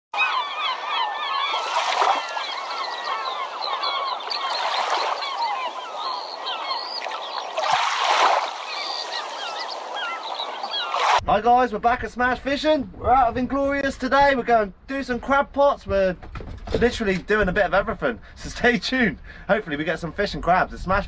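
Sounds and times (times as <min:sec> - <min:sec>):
flock of birds chirping and squawking: 0:00.2 - 0:11.2.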